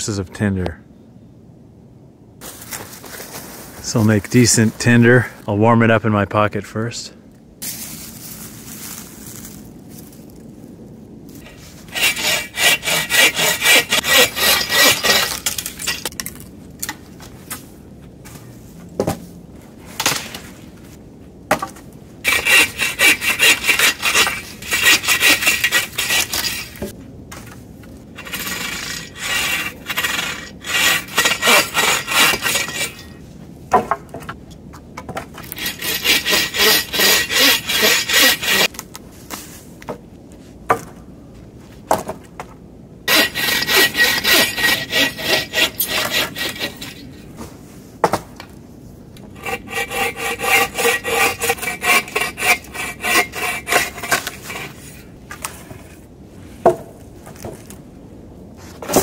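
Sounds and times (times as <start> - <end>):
bow saw cutting wood: 11.4 - 16.1, 22.3 - 26.9, 28.2 - 33.2, 35.4 - 38.7, 43.1 - 47.2, 49.3 - 55.6.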